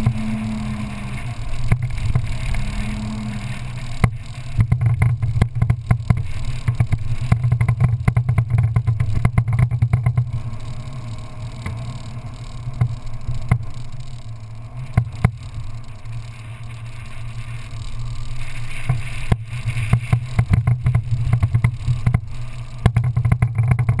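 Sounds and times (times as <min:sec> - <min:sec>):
off-road vehicle engine drone: 0:00.0 - 0:24.0
vehicle knocks and rattles: 0:04.0 - 0:10.4, 0:19.9 - 0:24.0.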